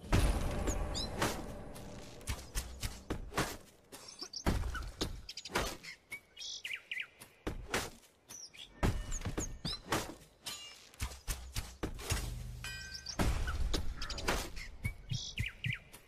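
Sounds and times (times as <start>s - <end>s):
sharp knocks and thuds: 0.0s - 3.7s, 4.4s - 5.8s, 7.4s - 8.0s, 8.8s - 10.2s, 13.1s - 15.8s.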